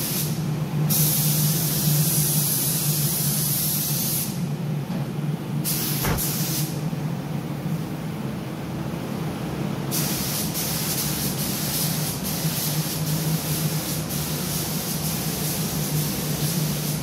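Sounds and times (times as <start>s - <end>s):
steady low hum: 4.4s - 9.8s
paint spray gun hissing: 5.7s - 6.7s, 10.0s - 17.0s.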